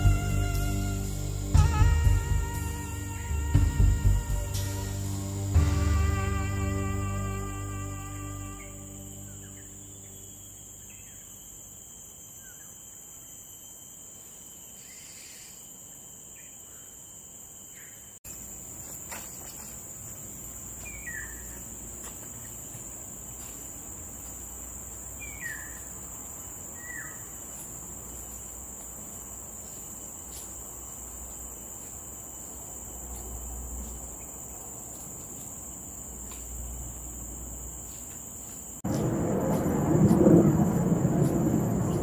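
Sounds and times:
high-pitched insect chorus: 0.0s - 42.0s.

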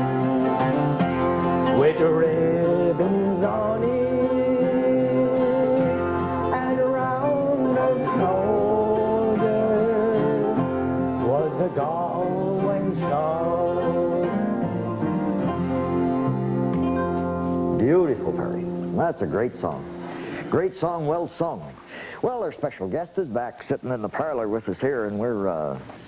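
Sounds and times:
guitars: 0.0s - 26.0s
man singing: 1.6s - 15.3s.

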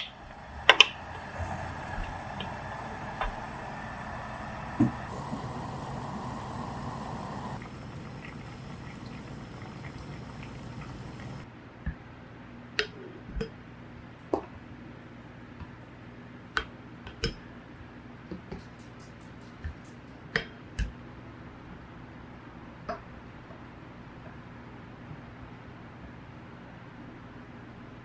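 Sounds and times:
syrup bubbling in a pot: 0.0s - 11.5s.

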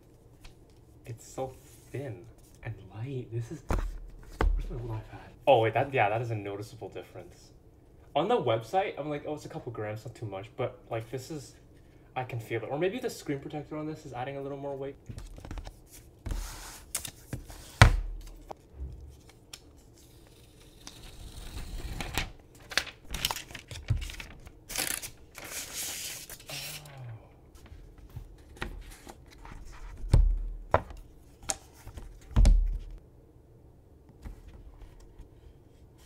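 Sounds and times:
paper rustling and tearing: 19.1s - 26.9s.

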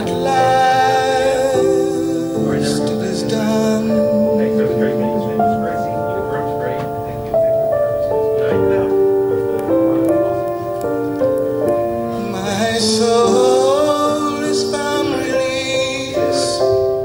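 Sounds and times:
person singing: 0.0s - 7.4s, 12.0s - 17.0s
piano music over loudspeakers: 0.0s - 17.0s.

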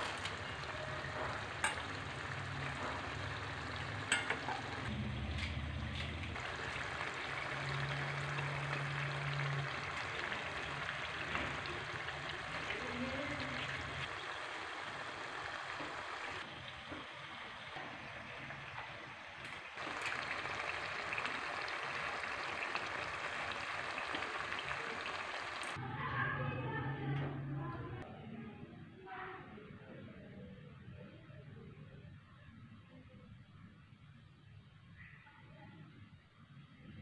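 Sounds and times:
food sizzling in hot oil: 0.0s - 4.9s, 6.1s - 25.8s.

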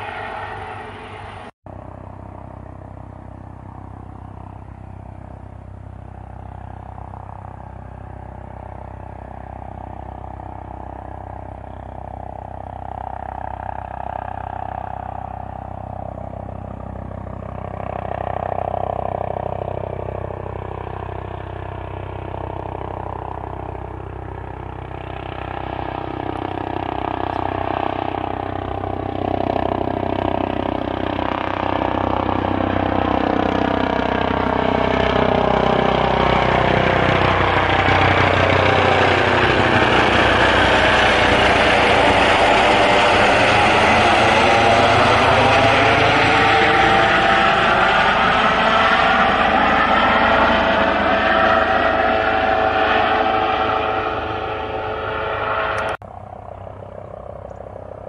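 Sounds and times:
helicopter rotor noise: 0.0s - 58.0s
helicopter turbine whine: 0.0s - 58.0s.

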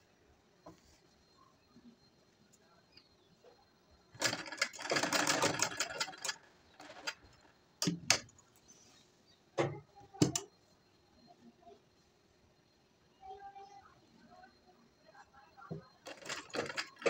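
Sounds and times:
sewing machine stitching: 4.1s - 8.3s, 16.0s - 17.0s.

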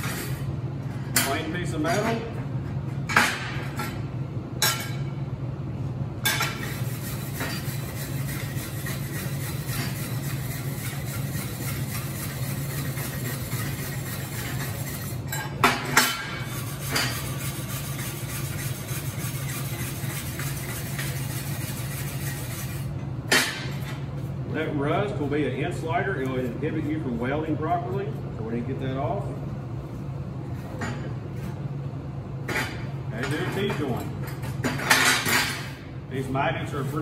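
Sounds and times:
steady low hum: 0.0s - 37.0s
wire brush scratching metal: 6.5s - 15.3s, 16.0s - 23.0s.

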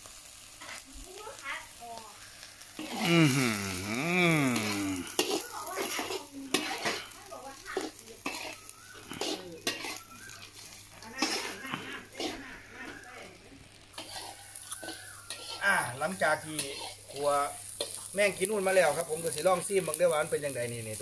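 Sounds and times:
sizzling: 0.0s - 21.0s
metal spatula scraping a wok: 0.5s - 0.8s, 4.6s - 13.2s, 13.9s - 19.9s.

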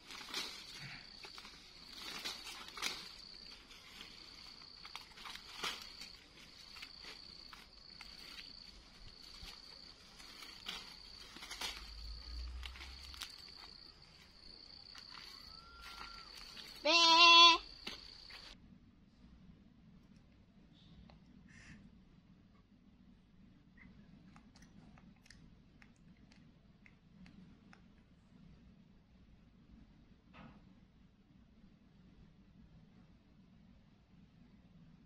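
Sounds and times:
small stems snapping: 0.0s - 13.8s, 17.8s - 18.5s
high insect drone: 0.0s - 18.6s
leaves rustling: 0.0s - 18.6s.

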